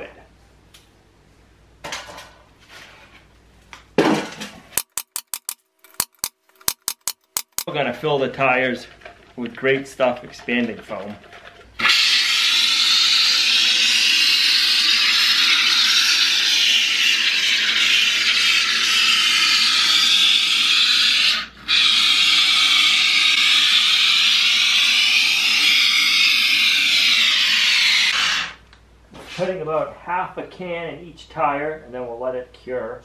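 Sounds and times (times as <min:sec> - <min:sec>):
spray foam can hissing: 0:11.9 - 0:21.1.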